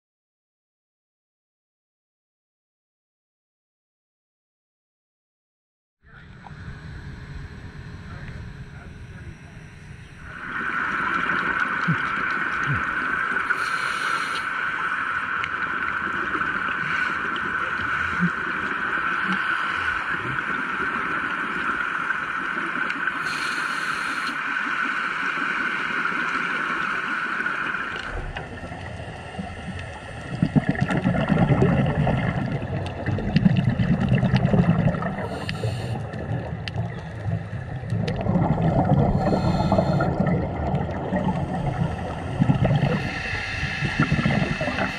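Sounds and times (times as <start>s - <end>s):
steady high whine: 6.0s - 33.1s, 34.9s - 44.9s
gurgling exhaust bubbles: 10.1s - 13.6s, 27.8s - 44.9s
regulator inhale hiss: 13.4s - 14.9s, 16.7s - 18.4s, 19.1s - 20.3s, 23.2s - 24.5s, 35.2s - 36.2s, 39.0s - 40.3s, 41.7s - 44.9s.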